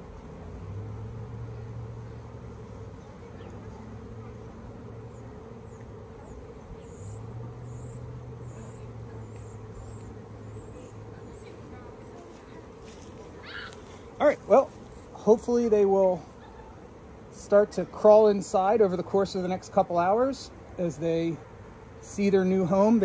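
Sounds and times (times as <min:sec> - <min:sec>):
bees buzzing: 0:00.0 - 0:23.0.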